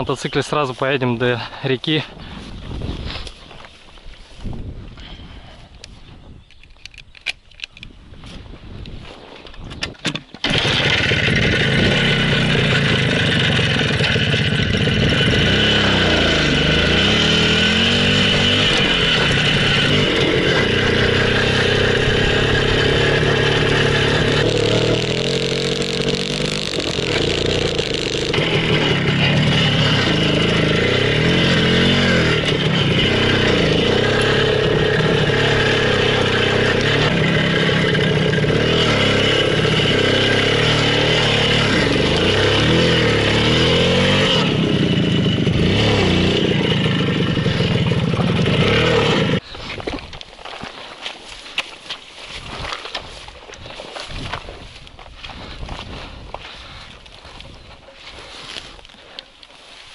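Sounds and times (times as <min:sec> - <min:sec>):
motorcycle engine revving: 0:10.4 - 0:49.4.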